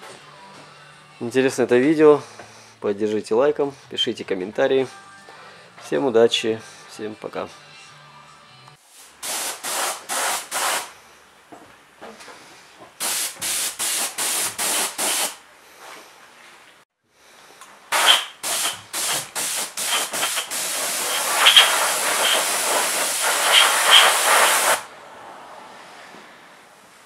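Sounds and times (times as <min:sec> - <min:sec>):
paint spray gun hissing: 0:09.2 - 0:10.9, 0:13.0 - 0:15.4, 0:17.9 - 0:24.9.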